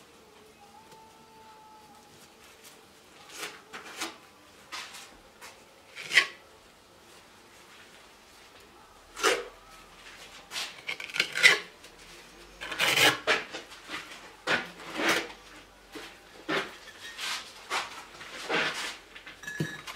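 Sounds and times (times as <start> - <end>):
trowel scraping mortar on bricks: 5.9 - 6.4, 10.6 - 11.7, 12.6 - 13.7, 14.5 - 15.4.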